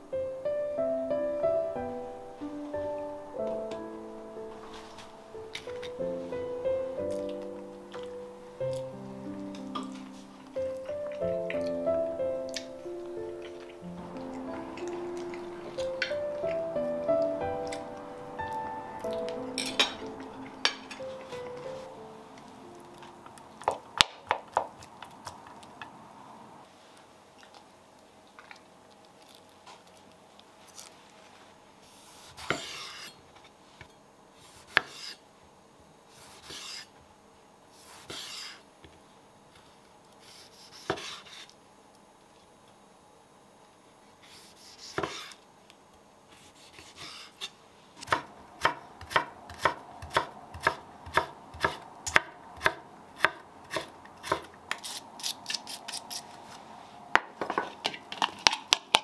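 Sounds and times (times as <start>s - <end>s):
spoon clinking glass bowl: 19.6s - 21.1s
knife chopping on wooden board: 34.7s - 35.2s, 40.6s - 41.4s, 44.4s - 45.4s, 48.0s - 54.9s.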